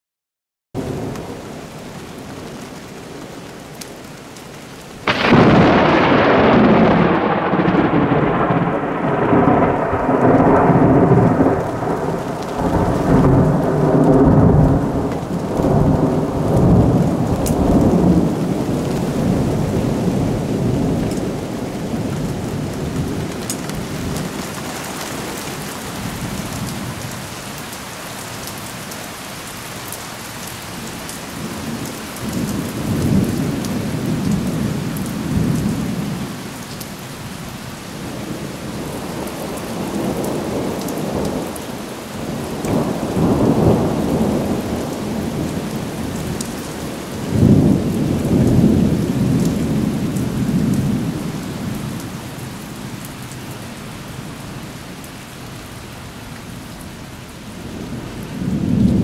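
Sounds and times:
steady rain: 0:00.8 - 0:59.0
thunder rumbling: 0:05.0 - 0:27.1, 0:38.1 - 0:52.1, 0:57.7 - 0:59.0.

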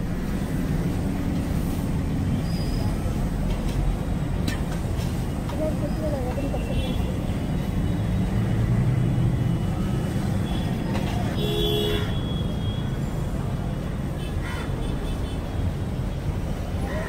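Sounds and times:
street traffic rumble: 0:00.0 - 0:17.0
vehicle horn toot: 0:11.4 - 0:12.6.

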